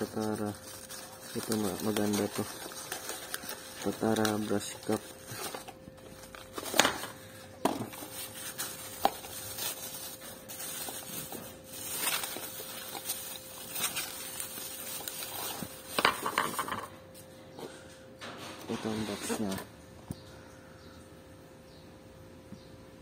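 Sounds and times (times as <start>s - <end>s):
cardboard boxes rustling: 0.0s - 16.5s
plastic bag crinkling: 0.0s - 16.9s.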